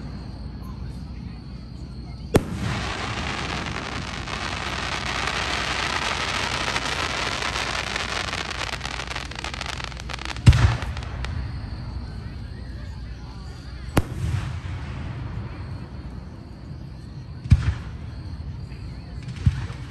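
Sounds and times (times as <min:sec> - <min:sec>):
crackle of small firework pops: 0:02.3 - 0:11.6, 0:14.0 - 0:15.3, 0:19.2 - 0:19.9
firework bang: 0:02.3 - 0:12.0, 0:14.0 - 0:15.8
deep firework boom: 0:02.3 - 0:12.1, 0:14.0 - 0:15.8.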